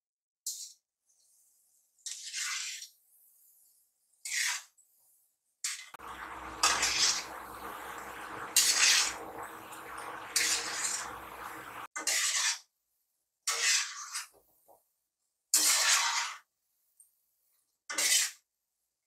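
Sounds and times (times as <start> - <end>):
food sizzling in hot oil: 6.0 - 11.9.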